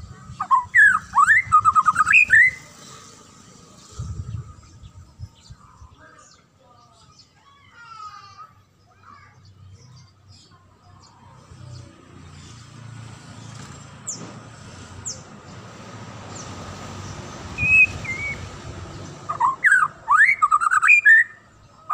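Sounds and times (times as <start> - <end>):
bird singing whistled phrases: 0.4 - 2.6, 17.6 - 18.5, 19.3 - 21.5.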